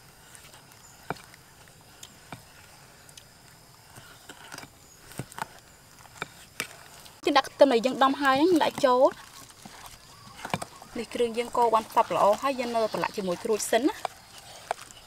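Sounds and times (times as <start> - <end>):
spoon stirring wet sauce: 5.3 - 15.0.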